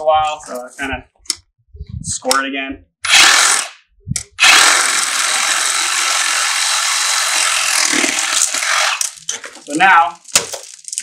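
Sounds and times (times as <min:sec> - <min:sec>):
power saw cutting plastic pipe: 0:03.0 - 0:03.8, 0:04.4 - 0:09.2.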